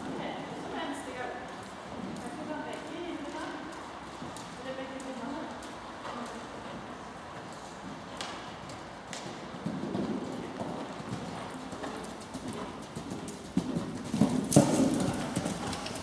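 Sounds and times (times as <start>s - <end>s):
horse hoofbeats on sand: 6.1s - 16.0s.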